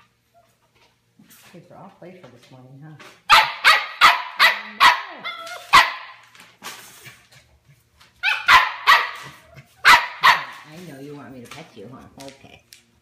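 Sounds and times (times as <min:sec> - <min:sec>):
puppy yapping: 0:03.3 - 0:06.2, 0:08.2 - 0:10.7.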